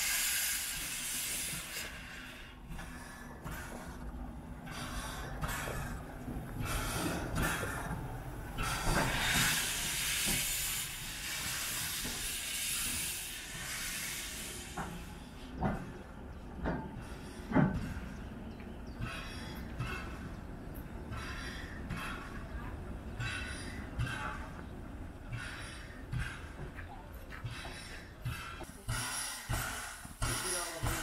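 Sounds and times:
steam hissing in bursts: 0:00.0 - 0:02.6, 0:08.5 - 0:15.3, 0:28.3 - 0:31.0.

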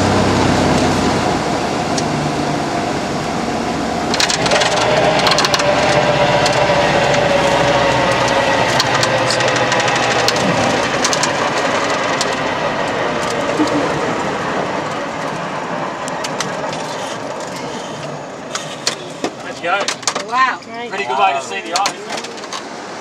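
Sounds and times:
light aircraft engine and propeller: 0:00.0 - 0:20.0
rapid rattles and clicks: 0:04.1 - 0:14.0.

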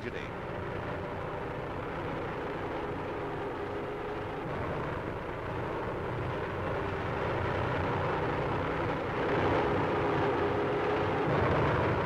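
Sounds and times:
airship engines droning: 0:00.0 - 0:12.0
old film soundtrack hiss: 0:00.0 - 0:12.0.

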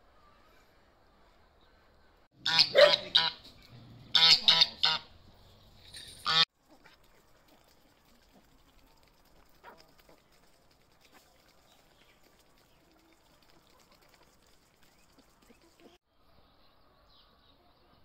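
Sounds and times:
goose honking: 0:02.4 - 0:03.5, 0:04.1 - 0:05.1, 0:06.2 - 0:06.4.

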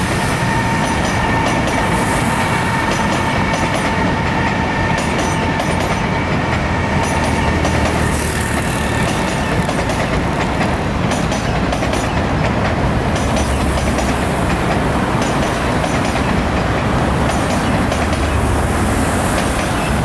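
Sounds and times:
train rumbling past: 0:00.0 - 0:20.0.

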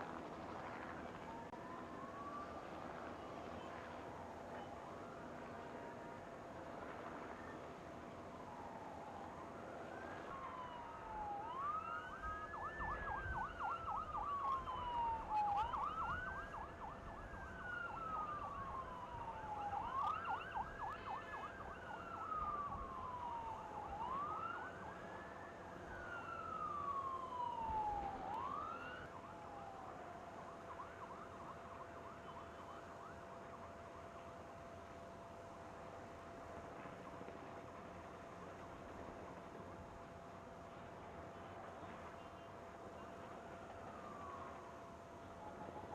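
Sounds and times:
emergency siren wailing: 0:00.0 - 0:45.9.

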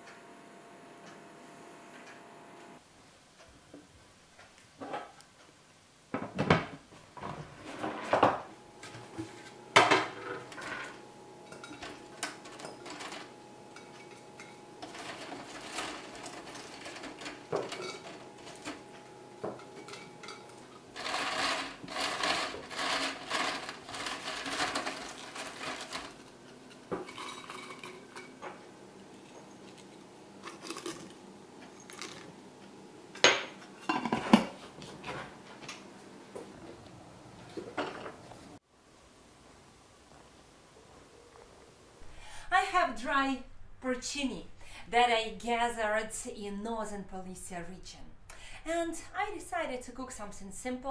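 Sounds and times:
dry crisp rustling: 0:21.0 - 0:26.4.

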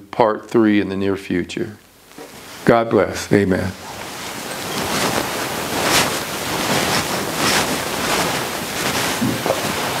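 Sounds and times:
loud rushing hiss: 0:03.7 - 0:10.0.

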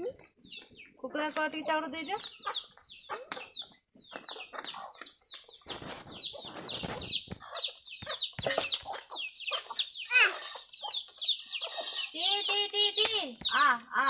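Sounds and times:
chickens clucking and peeping: 0:00.0 - 0:14.0
rustling scuffle on ground: 0:04.1 - 0:12.7.

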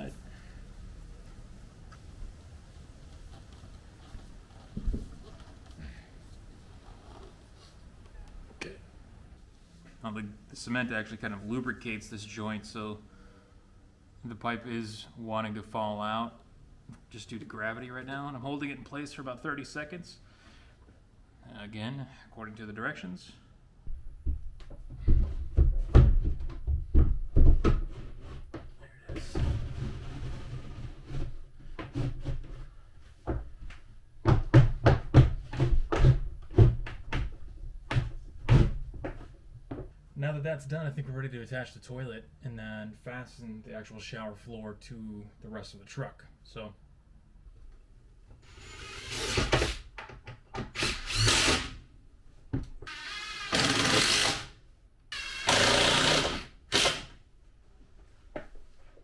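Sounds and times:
cordless drill driving screws: 0:48.4 - 0:49.8, 0:50.8 - 0:51.8, 0:52.9 - 0:57.1.

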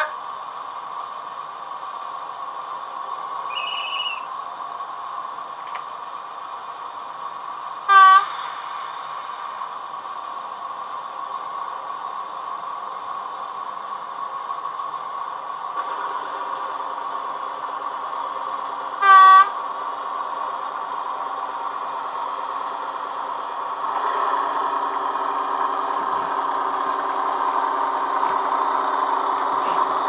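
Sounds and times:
model locomotive engine hum: 0:00.0 - 0:30.0
short high whistle: 0:03.5 - 0:04.3
loud horn toot: 0:07.9 - 0:08.3, 0:19.0 - 0:19.6.

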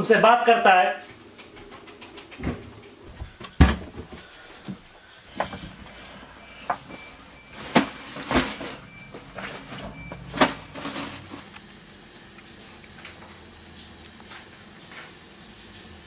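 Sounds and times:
clothes rustling: 0:01.0 - 0:11.4.

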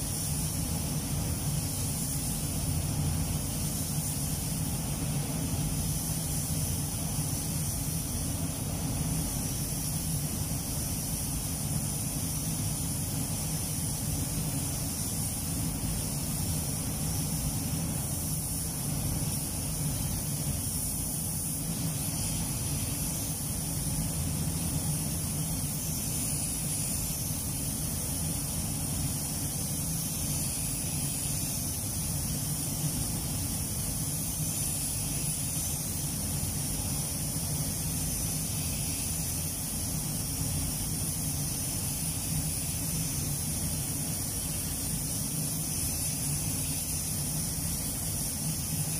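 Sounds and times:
paint spray gun hissing: 0:00.0 - 0:48.9.

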